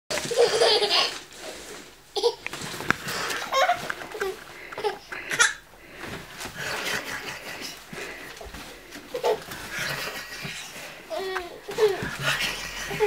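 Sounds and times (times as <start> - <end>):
newspaper rustling: 0.1 - 4.7
baby laughing: 0.2 - 1.2, 2.2 - 2.5, 3.1 - 5.6, 9.1 - 13.0.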